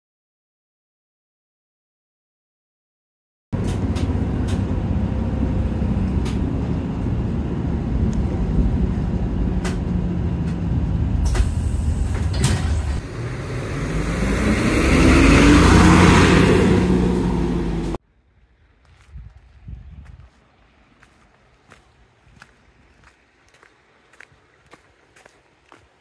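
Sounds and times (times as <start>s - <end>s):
bus engine rumble: 3.6s - 18.8s.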